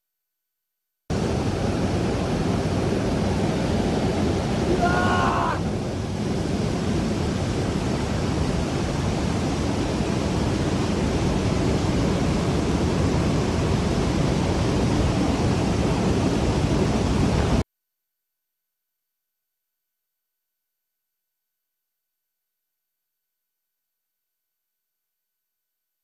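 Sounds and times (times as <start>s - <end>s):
aircraft engine noise: 1.1s - 17.6s
roar of rushing air: 1.2s - 9.0s.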